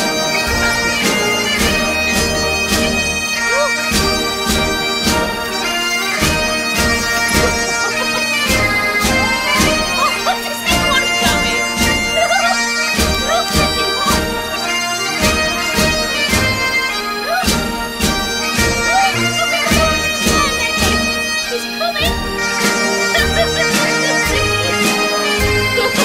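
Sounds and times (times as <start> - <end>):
bagpipe music: 0.0 - 26.0
drum beat: 6.2 - 21.2, 22.0 - 26.0.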